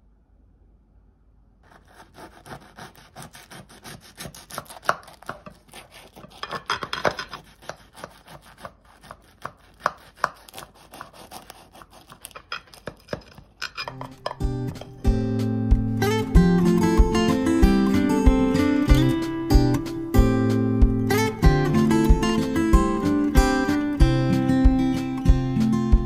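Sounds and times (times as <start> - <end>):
knife crunching flaky pastry: 1.7 - 14.0.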